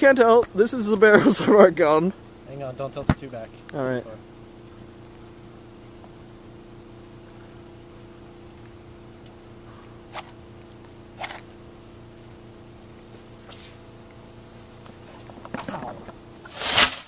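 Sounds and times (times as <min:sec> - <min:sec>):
insects chirping: 0:00.0 - 0:17.0
match being struck: 0:16.4 - 0:17.0.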